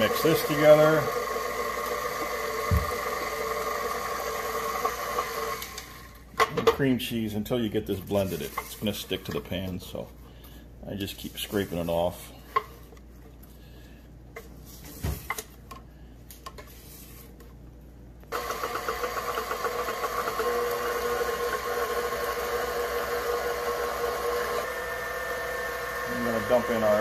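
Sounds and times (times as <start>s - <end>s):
stand mixer motor whirring: 0.0s - 6.2s, 18.3s - 27.0s.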